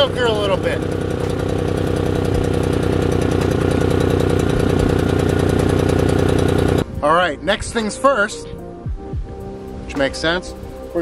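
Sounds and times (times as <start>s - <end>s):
small gasoline engine running: 0.0s - 6.8s.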